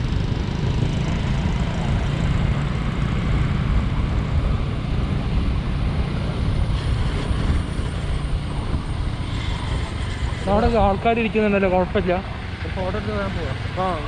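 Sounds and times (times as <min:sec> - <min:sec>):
wind buffeting microphone: 0:00.0 - 0:12.6
road noise: 0:00.0 - 0:14.0
scooter engine: 0:00.0 - 0:14.0.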